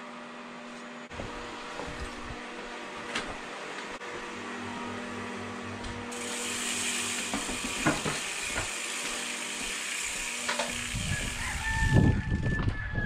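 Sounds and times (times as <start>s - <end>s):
bicycle clicks and knocks: 6.4s - 11.4s.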